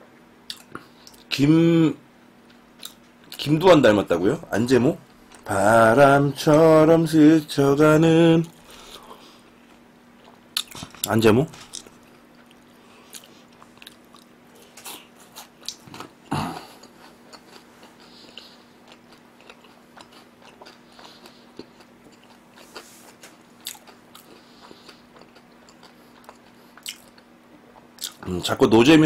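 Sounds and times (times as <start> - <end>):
chewing crunchy food: 8.4 - 28.4.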